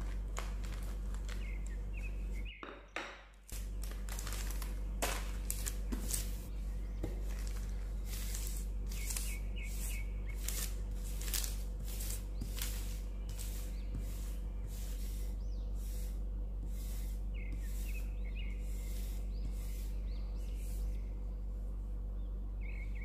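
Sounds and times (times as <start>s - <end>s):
paper rustling and crinkling: 0.0s - 2.2s, 3.5s - 6.5s, 7.1s - 9.4s, 10.3s - 13.5s
steady low hum: 0.0s - 23.0s
rolling pin over dough: 5.0s - 21.0s.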